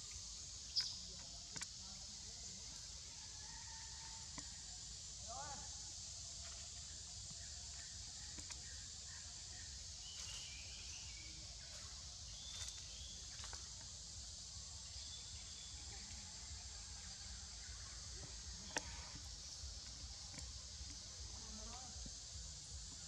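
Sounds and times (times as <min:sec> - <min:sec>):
faint chirps: 0:00.0 - 0:23.0
insects droning: 0:00.0 - 0:23.0.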